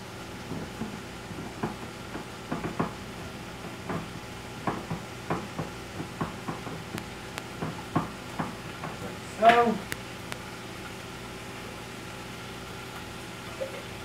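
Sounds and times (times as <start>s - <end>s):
bacon sizzling in frying pan: 0.0s - 14.0s.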